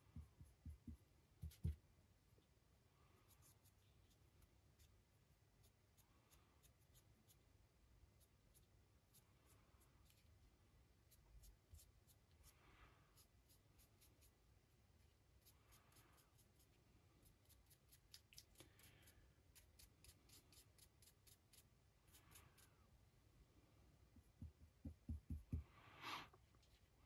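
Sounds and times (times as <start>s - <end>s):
paintbrush scratching: 3.1s - 7.5s, 8.1s - 22.9s.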